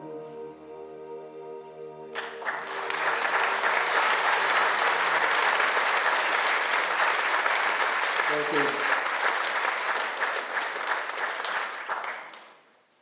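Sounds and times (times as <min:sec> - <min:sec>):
backing track music: 0:00.0 - 0:06.2
audience clapping: 0:02.1 - 0:12.8.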